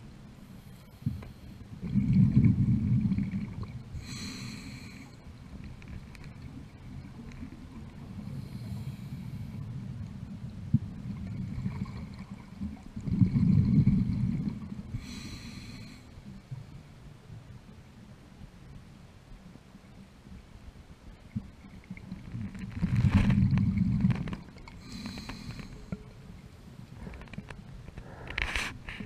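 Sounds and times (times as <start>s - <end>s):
bubbling underwater exhalation: 13.0s - 14.8s.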